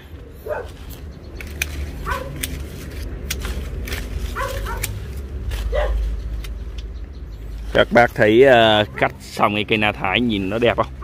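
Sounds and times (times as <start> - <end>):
pruning shears snipping: 0.2 - 7.0.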